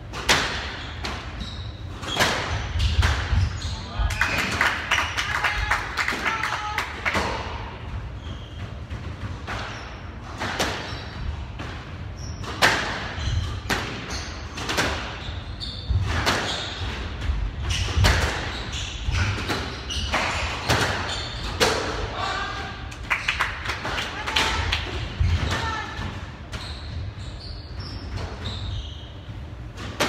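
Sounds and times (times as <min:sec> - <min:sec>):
squash ball impacts: 0:00.0 - 0:01.4, 0:02.0 - 0:03.6, 0:07.0 - 0:22.1.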